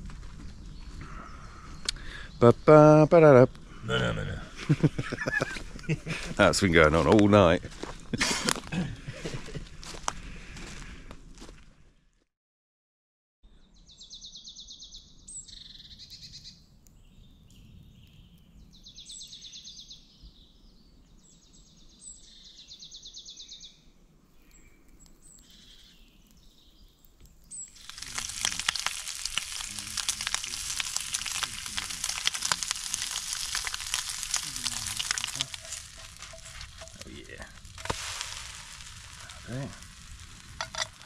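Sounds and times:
batter sizzling in a pan: 0:27.6 - 0:41.0.

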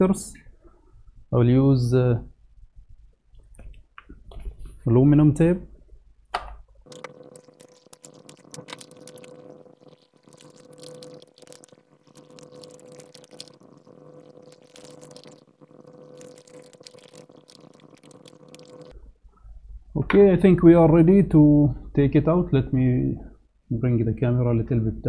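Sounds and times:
faint steady hum: 0:00.0 - 0:25.0
foil tape crinkling: 0:06.9 - 0:13.6.

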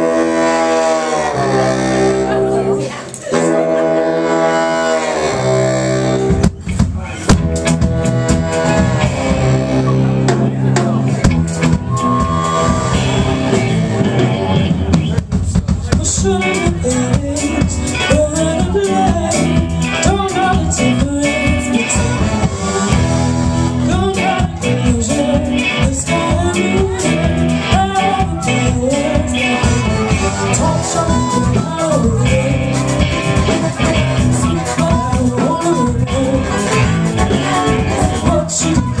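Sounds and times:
saxophone and trombone horns: 0:00.0 - 0:06.4, 0:07.4 - 0:10.4, 0:21.2 - 0:24.8, 0:26.9 - 0:31.4, 0:36.1 - 0:39.0
drums: 0:00.0 - 0:39.0
electric guitars: 0:00.0 - 0:39.0
woman singing lead: 0:15.9 - 0:39.0.

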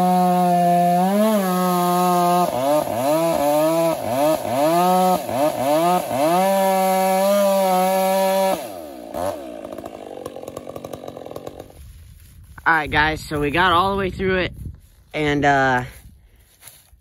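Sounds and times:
chainsaw cutting wood: 0:00.0 - 0:12.6.

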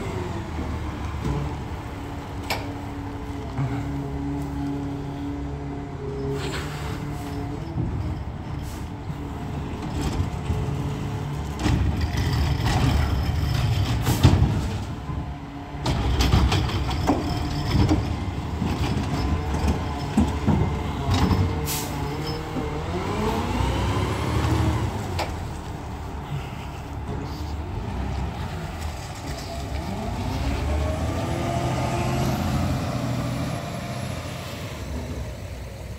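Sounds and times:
garbage truck engine rumbling: 0:00.0 - 0:35.9.

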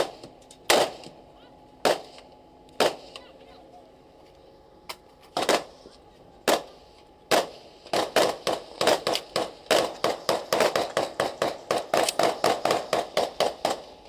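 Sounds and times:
rapid rifle shots: 0:00.0 - 0:01.2, 0:01.8 - 0:02.2, 0:02.8 - 0:03.2, 0:05.4 - 0:05.7, 0:06.5 - 0:14.0.

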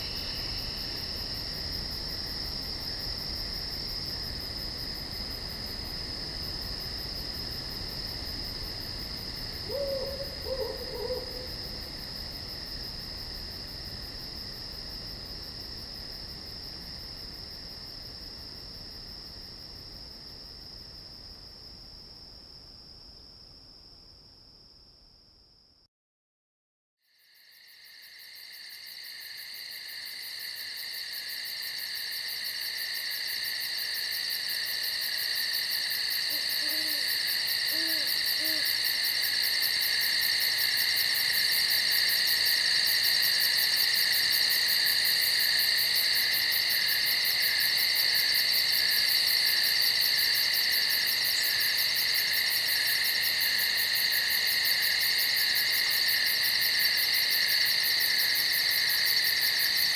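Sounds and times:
night insects trilling: 0:00.0 - 0:22.9, 0:27.1 - 0:59.9
soft low owl hoots: 0:09.6 - 0:11.8, 0:36.3 - 0:38.8.

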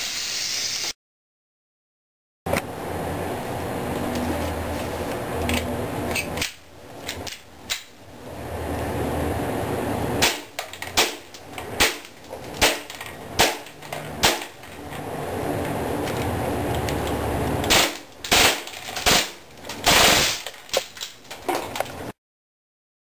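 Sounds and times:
airsoft pistol shots: 0:10.2 - 0:12.0, 0:12.6 - 0:14.6.

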